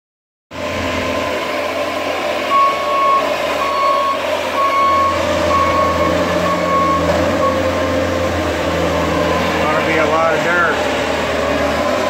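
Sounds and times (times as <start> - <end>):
diesel engine running: 0.5 - 12.0
backup alarm beeping: 2.5 - 7.7.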